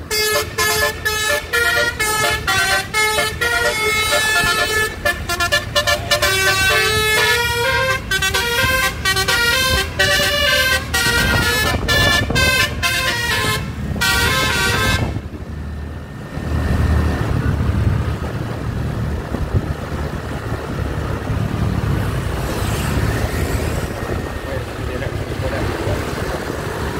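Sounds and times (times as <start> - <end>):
musical bus horn tune: 0.0 - 15.3
engine and road rumble: 0.0 - 26.9.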